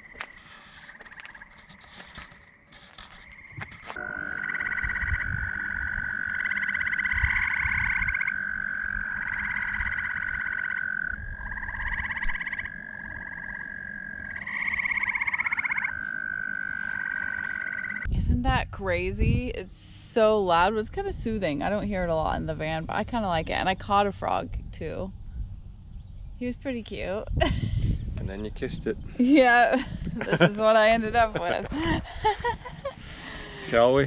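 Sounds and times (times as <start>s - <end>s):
long steady frog trill: 0.0s - 18.1s
pulsed frog trills: 0.0s - 18.1s.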